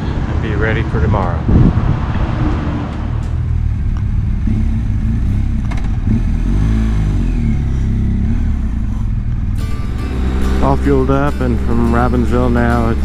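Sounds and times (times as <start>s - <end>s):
motorcycle engine running: 3.3s - 13.0s.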